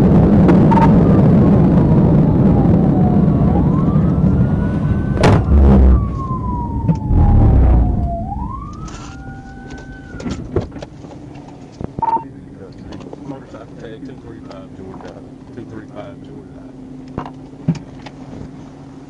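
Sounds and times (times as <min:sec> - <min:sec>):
road and wind noise: 0:00.0 - 0:19.0
police siren wailing: 0:00.1 - 0:10.6
sharp thump: 0:05.2 - 0:06.0.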